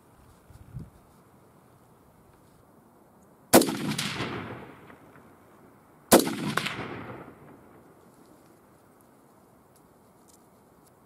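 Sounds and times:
rifle shots with echo: 0:03.5 - 0:05.5, 0:06.1 - 0:08.0.

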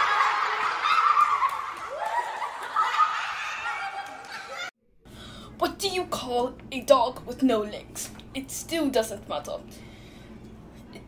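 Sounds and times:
children laughing: 0:00.0 - 0:04.8.

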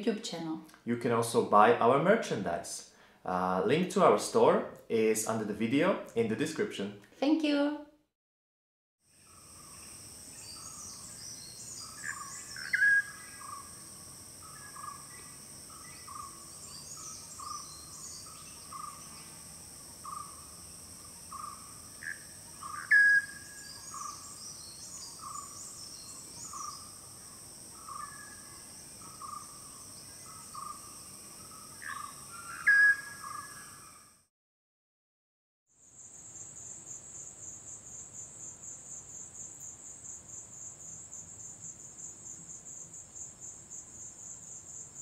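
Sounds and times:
insects buzzing: 0:09.1 - 0:34.1, 0:35.8 - 0:45.0.

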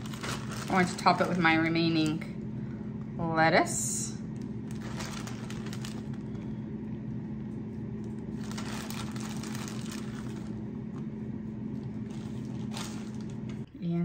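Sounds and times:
lettuce rustling and crinkling: 0:00.0 - 0:02.2, 0:04.4 - 0:06.6, 0:08.0 - 0:13.7
steady low hum: 0:00.0 - 0:14.0.

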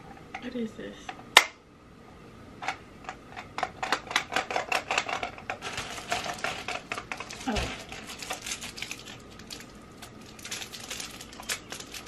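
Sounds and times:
plastic snap: 0:01.4 - 0:01.6
plastic parts clicking and rattling: 0:02.6 - 0:12.0
packaging rustling: 0:04.4 - 0:12.0.

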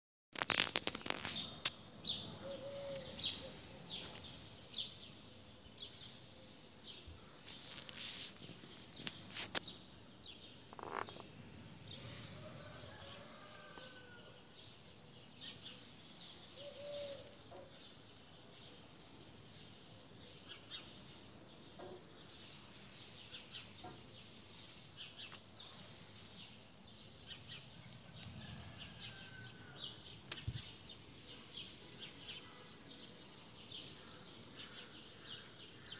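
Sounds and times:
small birds chirping: 0:00.4 - 0:35.9
lower bird call: 0:02.2 - 0:04.2, 0:16.5 - 0:17.4.

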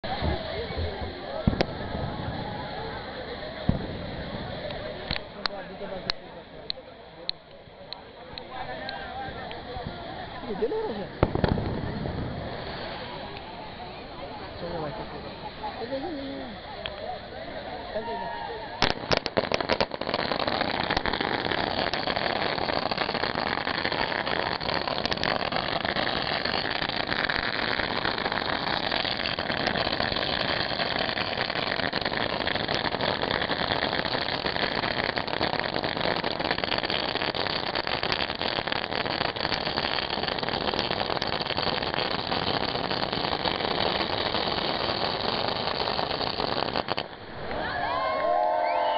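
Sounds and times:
fireworks crackling: 0:00.0 - 0:48.9.

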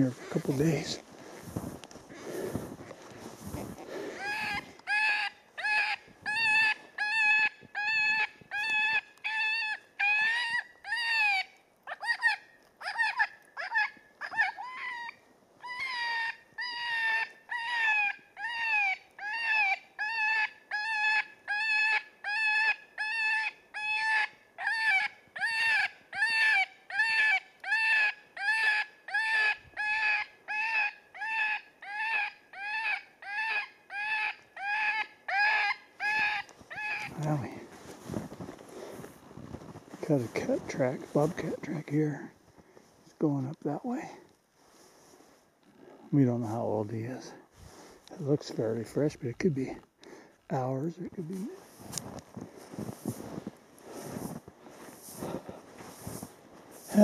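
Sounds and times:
electronic predator call crying: 0:04.2 - 0:37.3.

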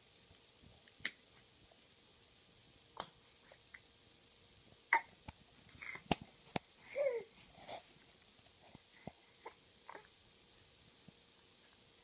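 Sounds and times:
infant hiccuping: 0:04.9 - 0:05.1.

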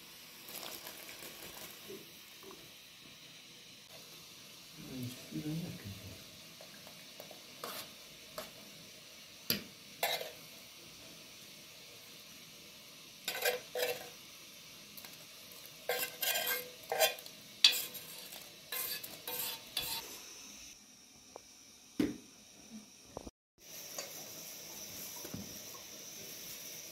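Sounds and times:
spoon scraping metal pan: 0:07.6 - 0:08.0, 0:10.0 - 0:10.4, 0:13.2 - 0:14.2, 0:15.6 - 0:20.2.

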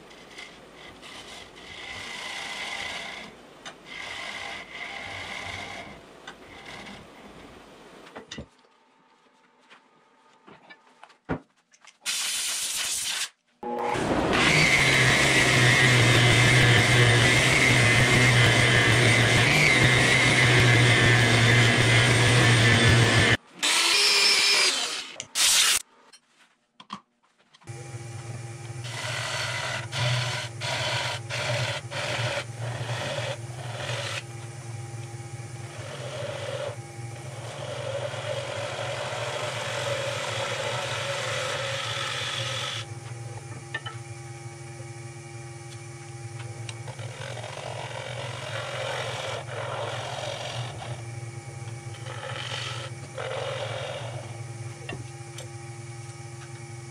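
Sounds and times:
wood lathe gouge cutting: 0:00.1 - 0:07.1, 0:13.6 - 0:25.8, 0:27.7 - 0:43.0, 0:46.6 - 0:54.4.

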